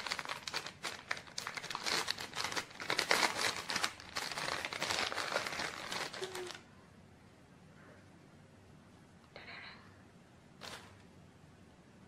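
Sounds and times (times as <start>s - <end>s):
plastic bag crinkling: 0.0s - 6.7s, 10.6s - 11.0s.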